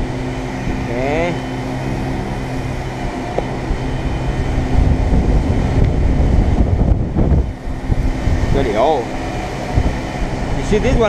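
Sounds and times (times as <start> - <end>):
low rumble: 0.0 - 11.0
mechanical hum: 0.0 - 11.0.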